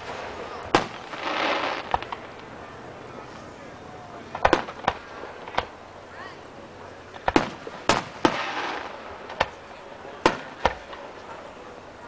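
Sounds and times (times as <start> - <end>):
fireworks bursting: 0.0 - 2.6, 4.2 - 5.9, 7.0 - 11.5.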